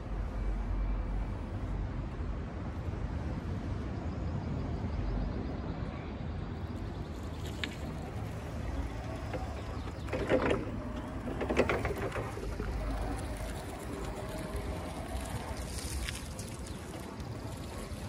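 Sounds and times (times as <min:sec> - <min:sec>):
electric forklift rumbling: 0:07.8 - 0:17.7.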